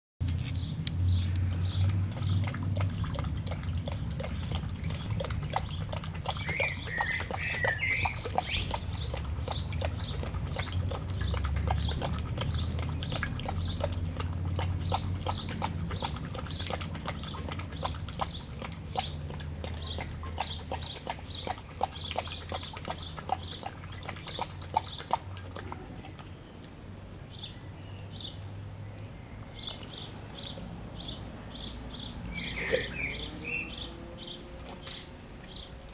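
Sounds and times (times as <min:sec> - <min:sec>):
dog lapping water: 0:00.2 - 0:27.0, 0:31.6 - 0:35.9
bird calling: 0:06.4 - 0:08.8, 0:32.3 - 0:33.7.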